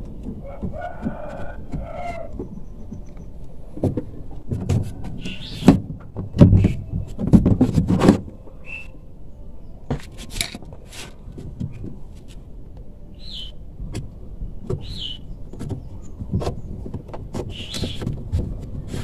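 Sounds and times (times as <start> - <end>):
plastic clattering and scraping: 3.8 - 8.4, 9.9 - 12.4, 15.6 - 19.0.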